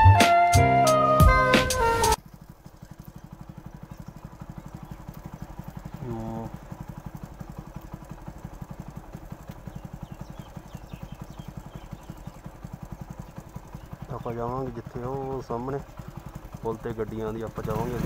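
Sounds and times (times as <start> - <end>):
short pitched sound: 0.0 - 2.2
motorcycle engine running: 0.0 - 18.0.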